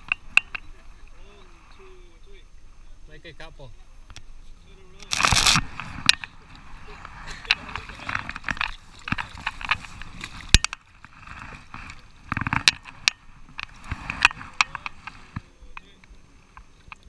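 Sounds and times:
river water splashing: 0.0s - 17.0s
handling clicks and knocks: 7.4s - 16.0s.

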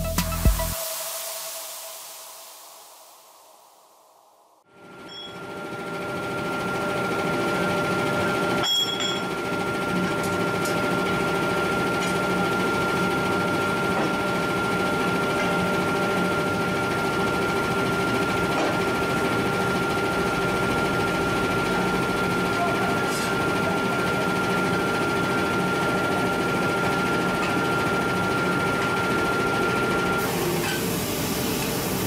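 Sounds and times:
high steady whine: 0.0s - 9.3s.

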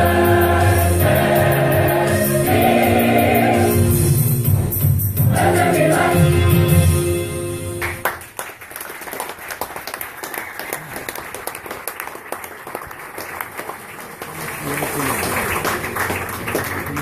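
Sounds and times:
choir singing over music: 0.0s - 7.5s
audience applause: 7.8s - 17.0s.

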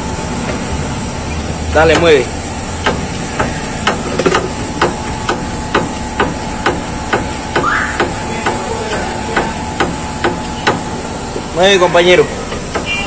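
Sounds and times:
sharp metallic knocking: 2.8s - 10.9s.

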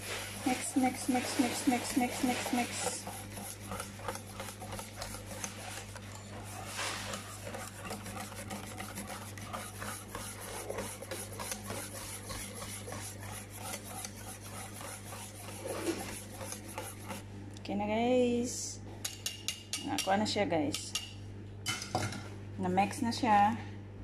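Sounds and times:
utensil whisking egg in bowl: 0.0s - 17.3s, 19.0s - 20.1s.

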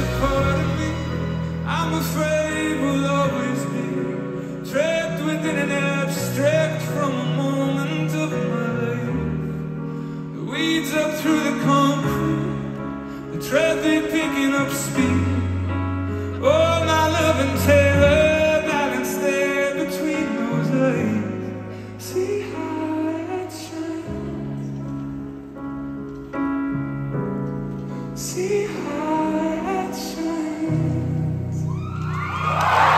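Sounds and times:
band playing low chords: 0.0s - 4.4s.

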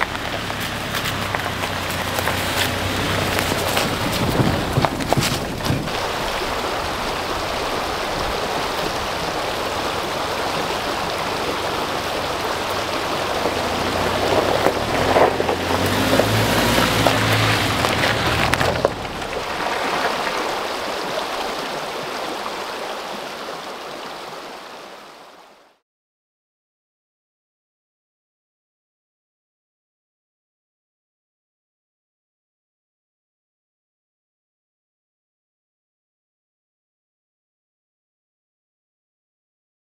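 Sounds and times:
pickup engine hum: 0.0s - 21.7s.

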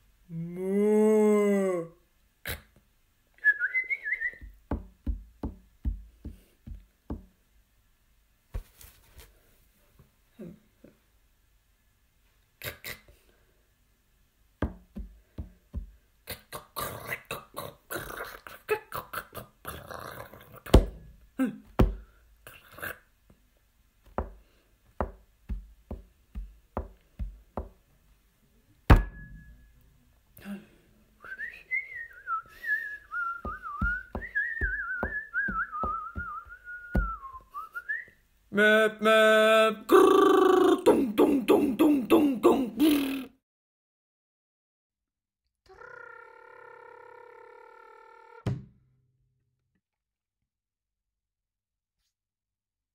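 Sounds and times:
person whistling melody: 3.4s - 4.5s, 31.2s - 38.2s.

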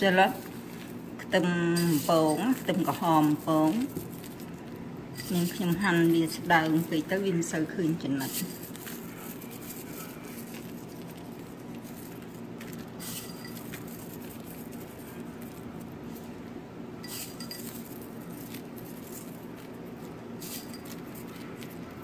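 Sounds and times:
steady low hum: 0.0s - 22.0s
glass clinking: 13.1s - 13.8s, 17.0s - 17.8s.

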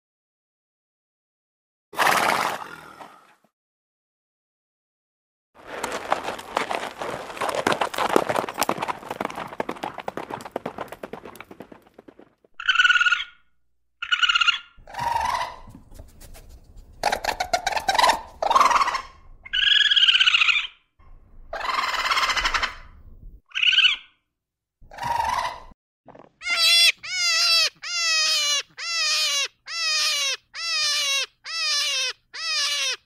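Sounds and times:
horse calling: 26.1s - 33.0s
fox yelping barks: 26.4s - 33.0s.

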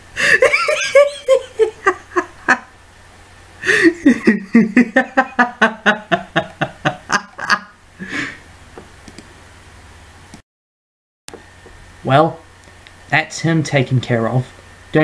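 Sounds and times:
man's cartoon-voice laugh: 0.2s - 2.7s, 3.6s - 7.8s.

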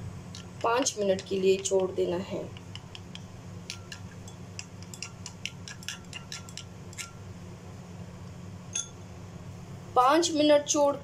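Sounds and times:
spoon clinking in glass bowl: 3.1s - 7.2s.

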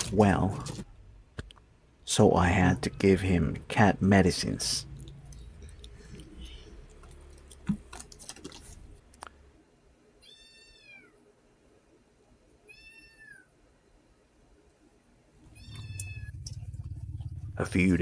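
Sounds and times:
kitten meowing: 10.2s - 11.1s, 12.7s - 13.4s, 15.5s - 16.5s.

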